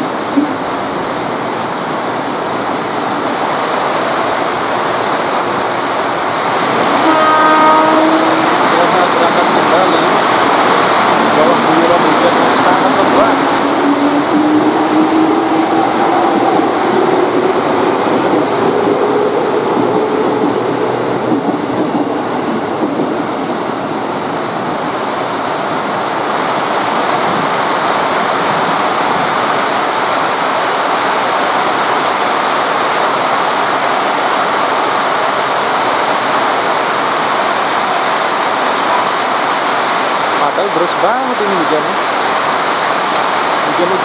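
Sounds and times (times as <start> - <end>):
heavy rain pouring: 0.0 - 44.0
electric train motor whine: 12.4 - 22.7.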